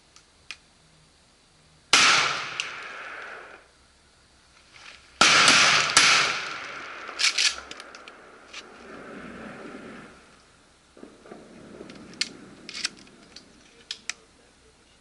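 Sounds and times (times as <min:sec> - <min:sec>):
shotgun shots echoing: 0:01.9 - 0:03.6, 0:05.2 - 0:08.4.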